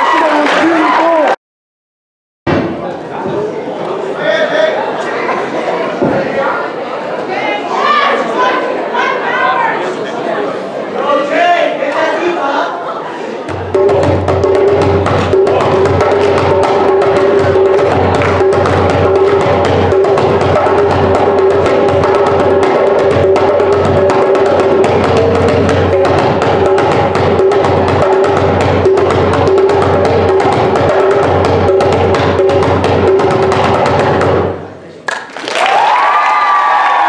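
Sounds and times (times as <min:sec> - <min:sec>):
hand drum fast rhythm: 0:13.5 - 0:34.6.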